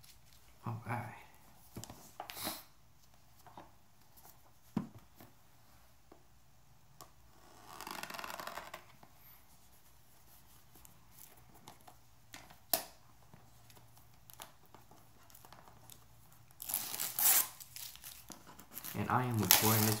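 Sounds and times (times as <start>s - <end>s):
plastic film tearing and crinkling: 15.3s - 20.0s
knife rasping through plastic film: 16.6s - 20.0s.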